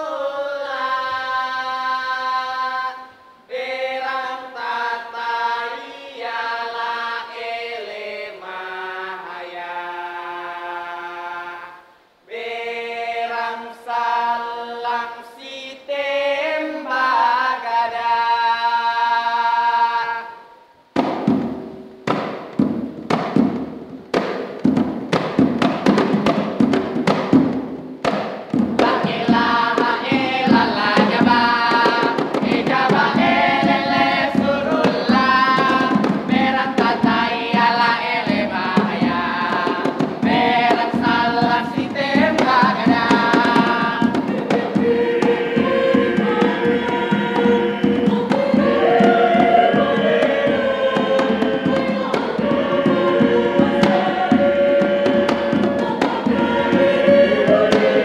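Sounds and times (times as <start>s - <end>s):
mixed choir singing: 0.0s - 21.7s, 23.2s - 58.0s
fast steady drumming: 21.0s - 58.0s.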